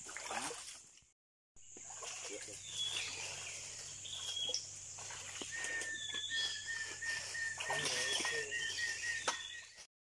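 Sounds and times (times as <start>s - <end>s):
high falling bird whistle: 5.4s - 9.8s
rapid series of bird notes: 5.5s - 9.9s.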